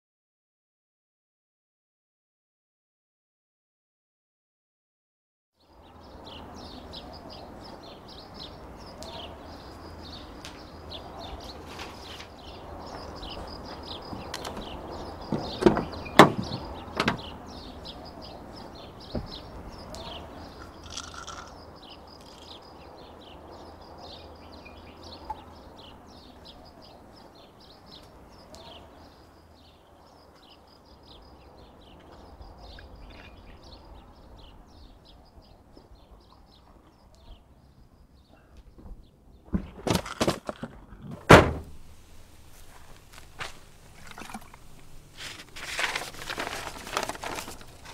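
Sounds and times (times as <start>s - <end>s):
car door knocks and clunks: 14.1s - 17.4s, 19.1s - 19.5s, 41.2s - 41.8s.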